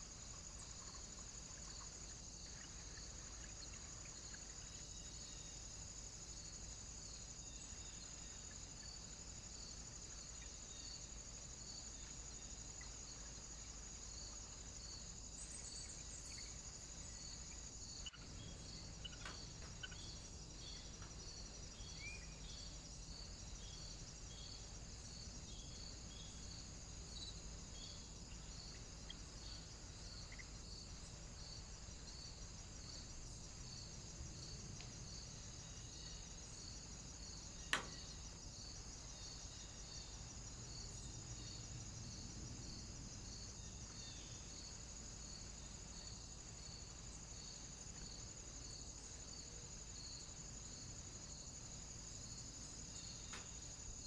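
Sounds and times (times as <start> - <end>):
faint insect chirping: 0.0 - 54.0
faint bird chirps: 15.4 - 22.7.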